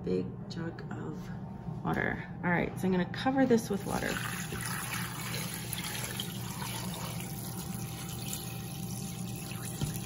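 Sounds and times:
water pouring into metal pot: 0:03.9 - 0:10.0.

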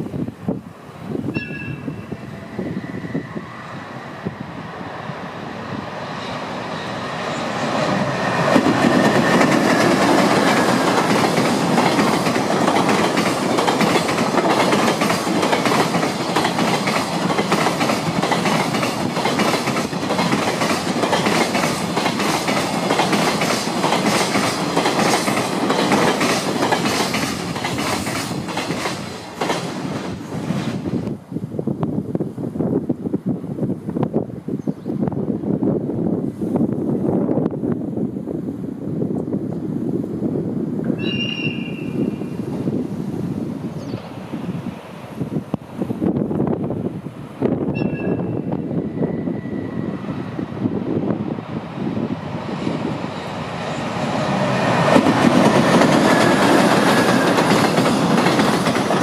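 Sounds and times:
freight train rumbling: 0:00.0 - 0:59.0
train wheels clicking over rail joints: 0:07.5 - 0:30.9, 0:53.9 - 0:59.0.

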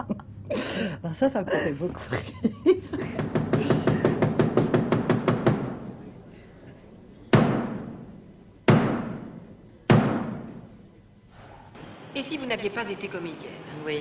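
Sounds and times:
woman laughing: 0:02.2 - 0:04.2
loud drum-like hits: 0:03.0 - 0:11.0.

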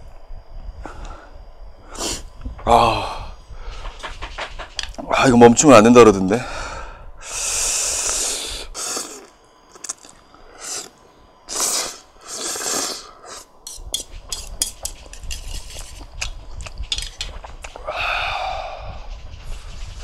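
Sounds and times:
man slurping noodles: 0:07.5 - 0:13.5.

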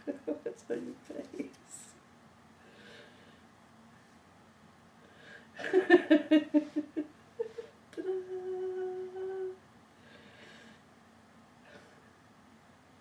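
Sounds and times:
person laughing: 0:00.0 - 0:00.6, 0:05.6 - 0:08.2
person humming: 0:06.4 - 0:09.6.

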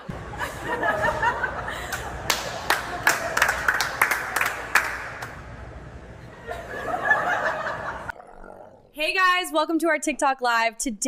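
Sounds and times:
laughter: 0:00.0 - 0:03.6, 0:06.2 - 0:08.1
group clapping: 0:01.9 - 0:05.5.

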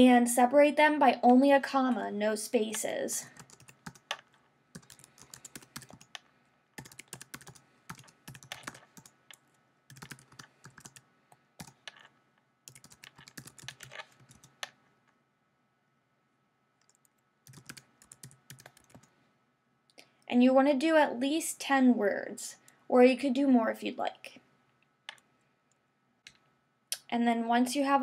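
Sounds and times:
typing on computer keyboard: 0:03.4 - 0:12.1, 0:12.7 - 0:14.8, 0:16.8 - 0:19.1.

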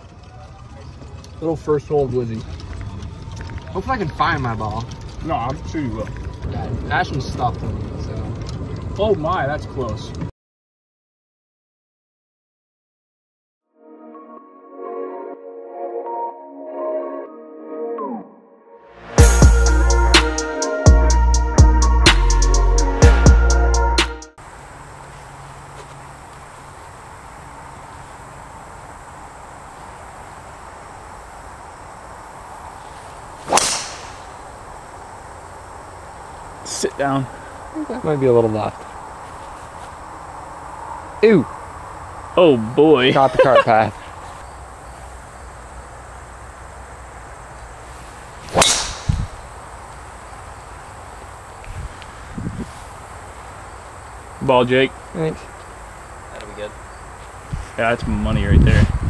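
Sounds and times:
faint outdoor background: 0:00.0 - 0:10.3, 0:13.7 - 0:59.0
golf club hitting ball: 0:33.4 - 0:34.6, 0:48.5 - 0:49.4
low thud: 0:48.6 - 0:49.4.

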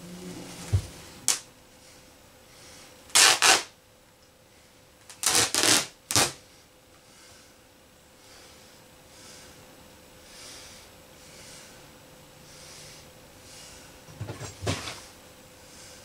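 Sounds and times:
fabric ripping: 0:03.1 - 0:03.7, 0:05.1 - 0:06.4.

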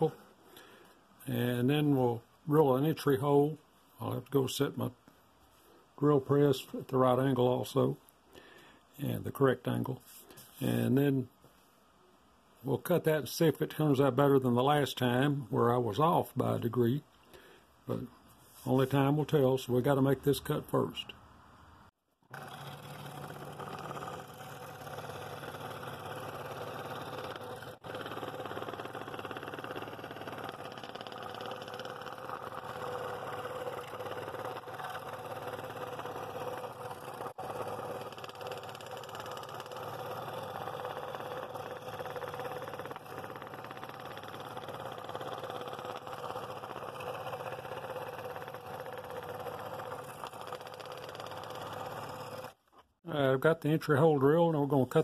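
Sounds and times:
scroll saw cutting wood: 0:22.2 - 0:52.9.

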